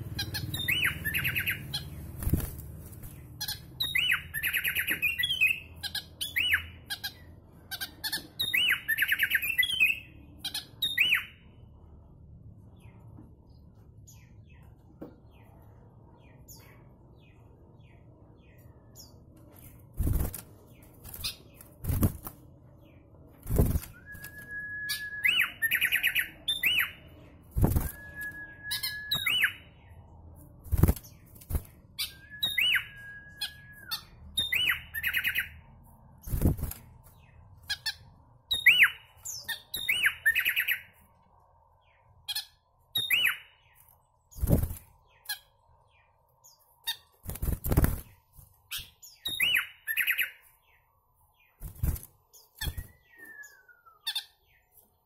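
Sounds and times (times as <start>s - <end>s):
bird singing whistles and trills: 0.2s - 1.9s, 3.5s - 7.2s, 7.8s - 11.4s, 23.9s - 27.0s, 27.7s - 30.0s, 32.0s - 35.6s, 38.5s - 40.9s, 42.4s - 43.8s, 48.7s - 50.8s, 52.6s - 54.6s
bird wing flutters and thumps: 2.1s - 3.2s, 19.9s - 22.4s, 23.4s - 24.4s, 27.5s - 28.2s, 30.6s - 31.8s, 36.2s - 37.0s, 44.4s - 44.9s, 47.2s - 48.2s, 51.6s - 53.0s.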